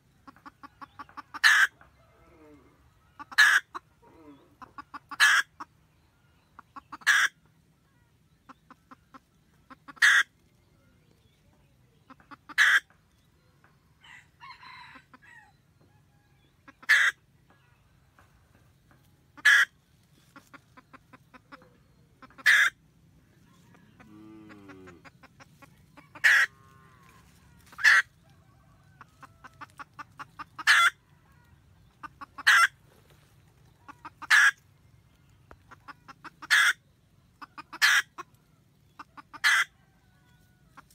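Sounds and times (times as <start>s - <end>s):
hen cackling: 0.2s - 5.8s, 6.6s - 7.5s, 8.4s - 10.3s, 12.1s - 13.0s, 16.6s - 17.2s, 19.4s - 22.8s, 23.4s - 34.6s, 35.5s - 40.9s.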